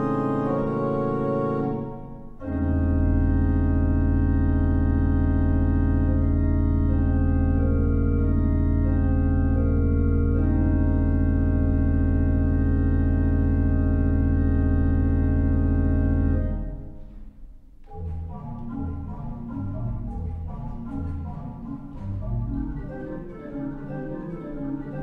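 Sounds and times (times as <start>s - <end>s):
pipe organ playing: 0.0s - 17.2s, 17.8s - 25.0s.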